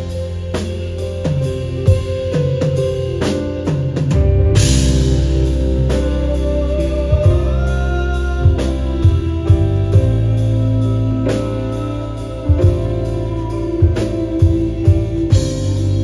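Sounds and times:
live band playing a ballad: 0.0 - 16.0
man singing: 6.0 - 16.0.

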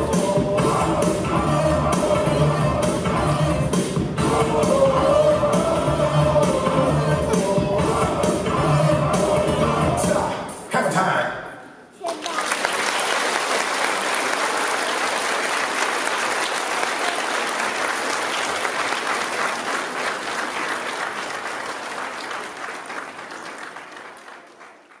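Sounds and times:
audience applauding: 12.0 - 25.0.

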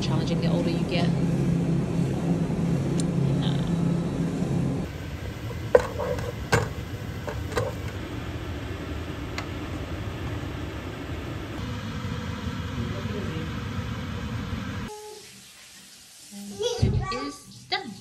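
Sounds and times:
low hum: 0.0 - 14.9
wooden spoon stirring in metal pot: 5.5 - 6.7
spoon knocking against pot: 5.7 - 7.8.

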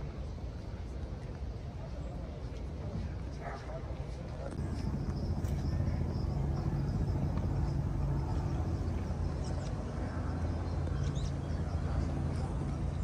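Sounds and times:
low mechanical hum: 4.4 - 13.0
faint bird chirps: 4.6 - 12.2.

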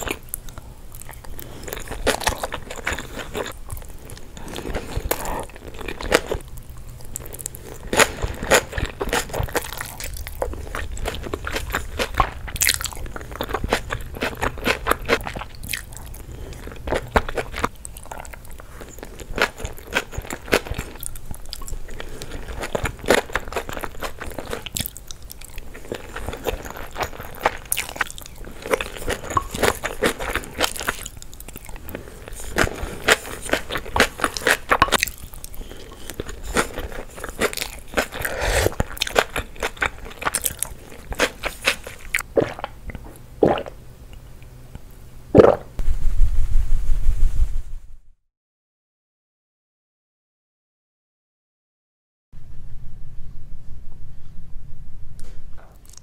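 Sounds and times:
mouth chewing with clicks and smacks: 0.0 - 44.5, 55.7 - 56.0.

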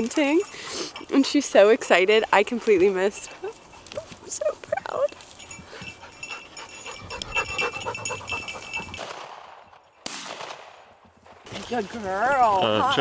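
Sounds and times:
dog panting hard: 2.3 - 9.1.

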